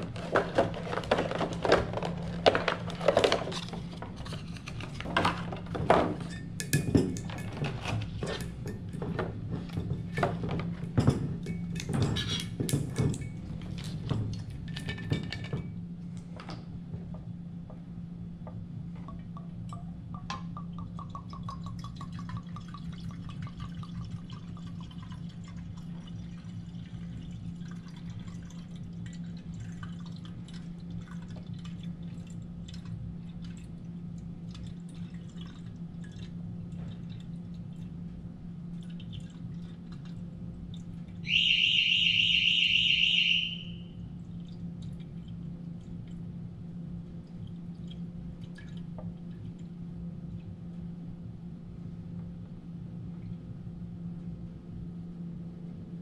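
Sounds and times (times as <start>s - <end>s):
liquid glugging into decanter: 19.0s - 33.8s
loud high electronic beep: 41.3s - 43.9s.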